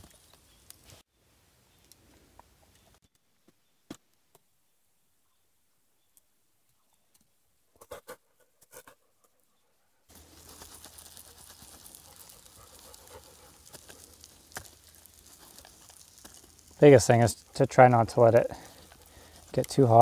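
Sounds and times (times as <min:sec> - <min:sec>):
dough sizzling in a frying pan: 0:10.2 - 0:17.5.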